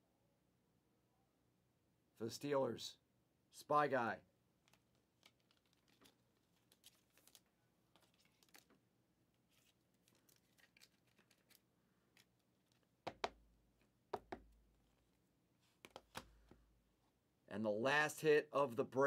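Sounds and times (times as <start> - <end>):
plastic sleeve crinkling: 4.6 - 8.8, 9.4 - 12.9.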